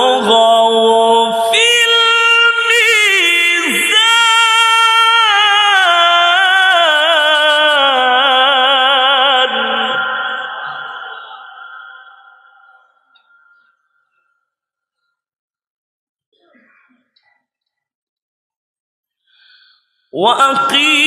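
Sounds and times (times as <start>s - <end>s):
man reciting melodically: 0.0s - 13.6s, 20.1s - 21.0s.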